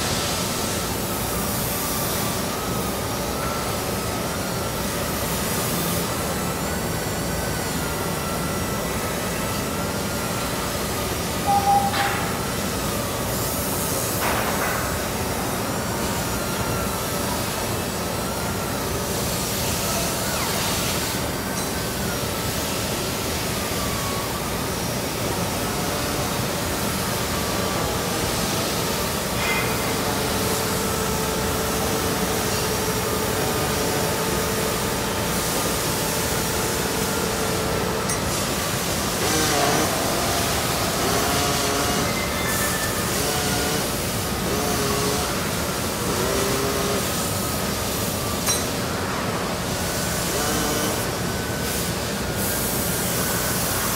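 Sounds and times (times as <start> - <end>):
short loud tone: 11.4 - 12.4.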